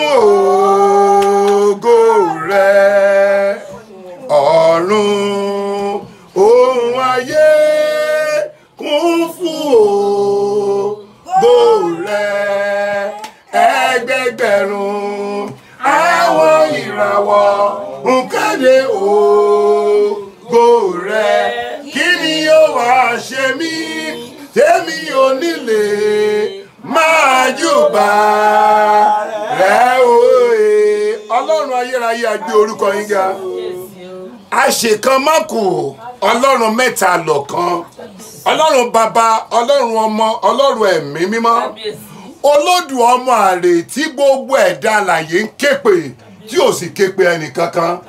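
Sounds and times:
man singing unaccompanied: 0:00.0 - 0:37.9.

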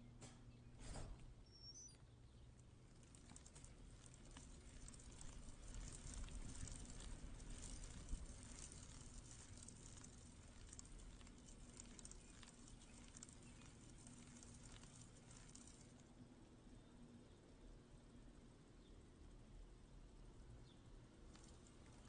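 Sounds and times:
trike rolling on asphalt: 0:01.8 - 0:16.3, 0:21.2 - 0:22.0
small clicks and rattles: 0:02.5 - 0:16.1, 0:21.3 - 0:22.0.

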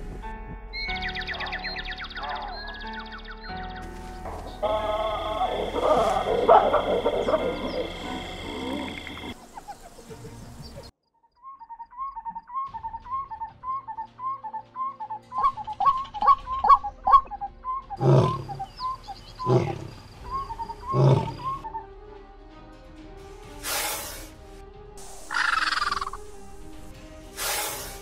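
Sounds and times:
lion growling: 0:04.6 - 0:09.4, 0:18.0 - 0:18.7, 0:19.4 - 0:21.6.

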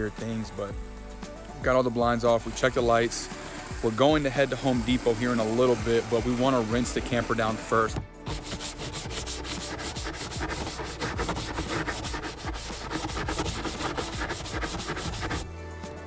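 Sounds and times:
sponge scrubbing plastic: 0:01.9 - 0:15.5.

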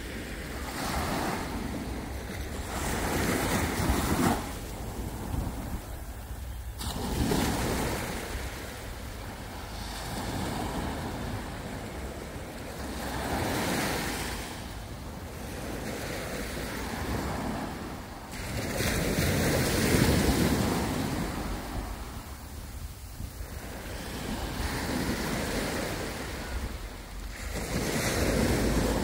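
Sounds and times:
waves washing up a sandy beach: 0:00.0 - 0:29.0
steady low rumble: 0:01.4 - 0:12.9.

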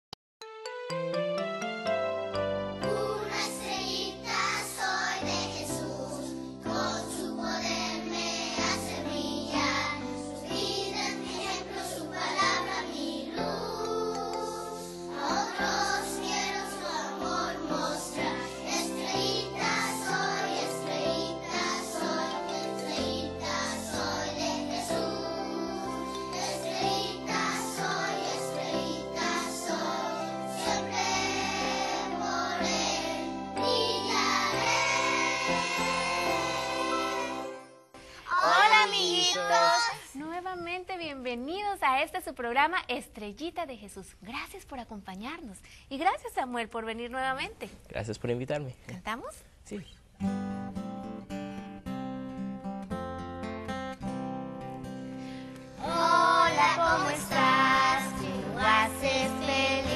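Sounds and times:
instrumental backing: 0:00.4 - 0:04.5
instrumental backing music: 0:00.4 - 0:05.6, 0:06.4 - 0:38.0, 0:50.2 - 0:59.9
children singing: 0:02.8 - 0:37.6, 0:55.8 - 0:59.9.

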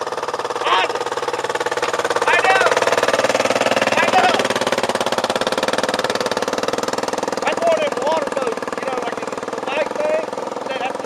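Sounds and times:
atv engine idling: 0:00.0 - 0:11.0
voices: 0:00.6 - 0:04.9, 0:07.3 - 0:11.0.

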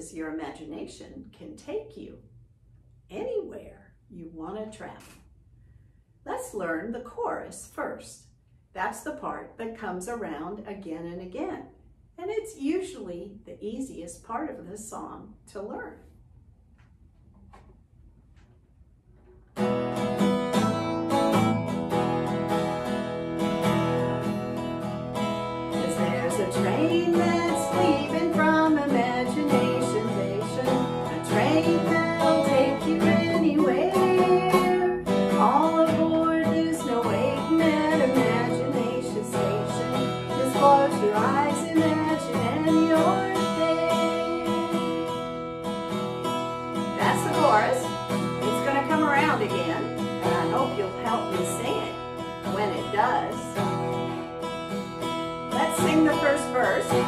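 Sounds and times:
acoustic guitar strumming: 0:19.4 - 0:57.0
woman singing: 0:25.7 - 0:45.4, 0:47.0 - 0:47.8, 0:48.4 - 0:53.7, 0:55.6 - 0:57.0.

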